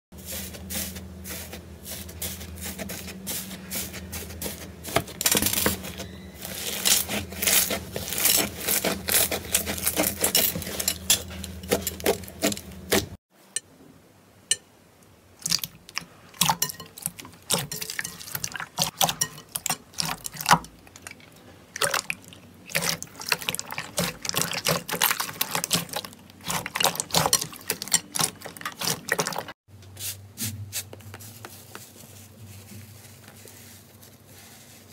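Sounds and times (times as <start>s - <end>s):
slime squishing: 0.2s - 13.2s, 15.4s - 29.5s.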